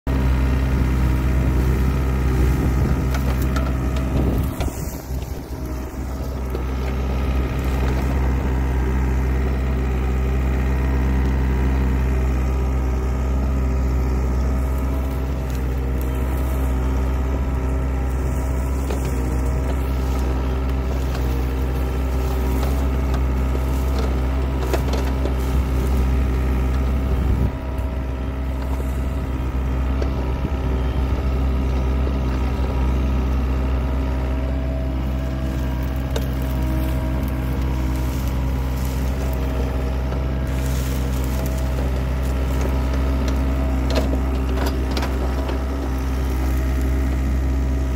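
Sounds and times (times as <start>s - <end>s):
excavator diesel engine running: 0.1s - 47.9s
bucket digging through soil: 1.4s - 8.8s, 14.4s - 29.4s, 35.2s - 47.4s
stalks and roots cracking: 14.4s - 29.4s, 35.0s - 47.8s.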